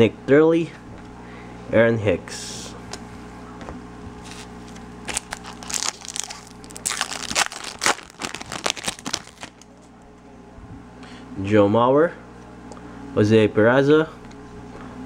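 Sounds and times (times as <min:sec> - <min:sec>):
foil wrapper crinkling: 0:04.2 - 0:09.8.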